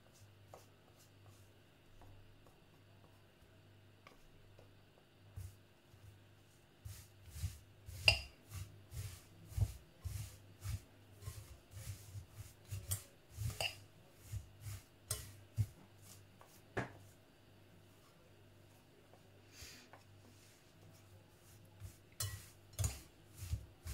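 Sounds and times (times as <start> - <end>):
spatula scraping in glass bowl: 6.8 - 16.2, 21.8 - 23.9.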